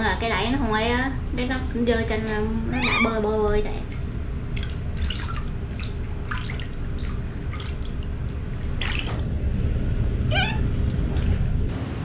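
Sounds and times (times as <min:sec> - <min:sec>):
high wavering squeak: 0:02.7 - 0:03.2, 0:10.3 - 0:10.7
water splashing in basin: 0:04.5 - 0:09.4
low rumble: 0:09.0 - 0:12.0.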